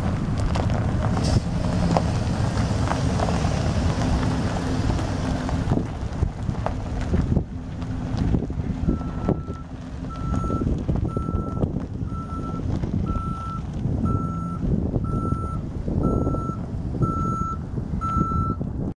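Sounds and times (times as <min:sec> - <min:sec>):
engine rumble: 0:00.0 - 0:19.0
wind noise: 0:00.0 - 0:19.0
reversing alarm beeping: 0:08.8 - 0:18.6.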